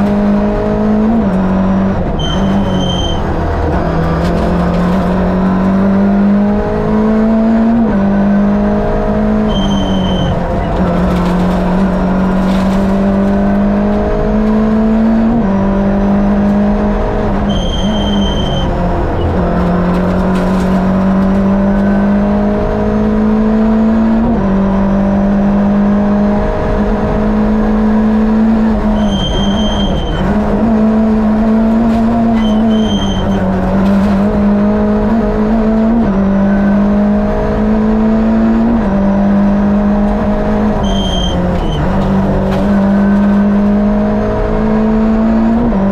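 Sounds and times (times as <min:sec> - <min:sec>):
rally car engine revving: 0:00.0 - 0:45.9
short high beep: 0:09.4 - 0:10.4, 0:17.5 - 0:18.7, 0:29.0 - 0:30.2, 0:40.8 - 0:41.8.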